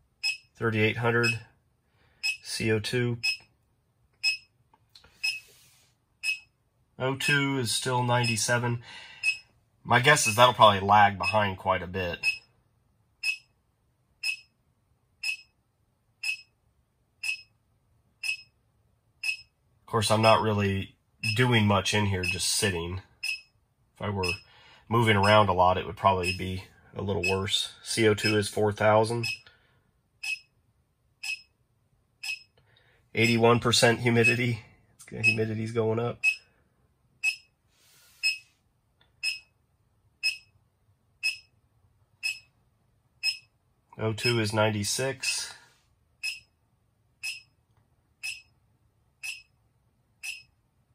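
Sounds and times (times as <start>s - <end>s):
electronic alarm beeping: 0.2s - 0.6s, 1.2s - 1.5s, 2.2s - 2.6s, 3.2s - 3.5s, 4.2s - 4.5s, 5.2s - 5.5s, 6.2s - 6.5s, 8.2s - 8.6s, 9.2s - 10.6s, 11.2s - 11.5s, 12.2s - 12.5s, 13.2s - 13.5s, 14.2s - 14.5s, 15.2s - 15.6s, 16.2s - 16.6s, 17.2s - 17.5s, 18.2s - 18.6s, 19.2s - 19.5s, 21.2s - 21.5s, 22.2s - 22.6s, 23.2s - 23.5s, 24.2s - 24.5s, 26.2s - 26.5s, 29.2s - 29.5s, 30.2s - 30.5s, 31.2s - 31.5s, 32.2s - 32.6s, 34.2s - 34.4s, 35.2s - 35.5s, 36.2s - 36.5s, 37.2s - 37.5s, 38.2s - 38.5s, 39.2s - 39.5s, 40.2s - 40.5s, 41.2s - 41.5s, 42.2s - 42.5s, 43.2s - 43.5s, 46.2s - 46.5s, 47.2s - 47.6s, 48.2s - 48.6s, 49.2s - 49.6s, 50.2s - 50.6s
short high electronic beeps: 46.2s - 46.5s, 48.2s - 48.5s, 49.2s - 49.5s, 50.2s - 50.5s.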